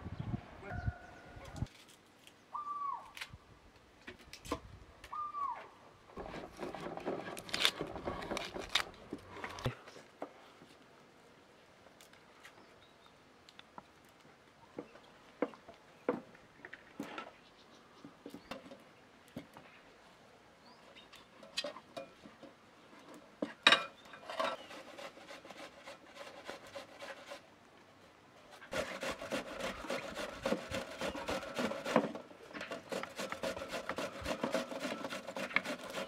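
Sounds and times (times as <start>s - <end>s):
falling bird calls: 2.5s - 3.2s, 5.1s - 5.8s.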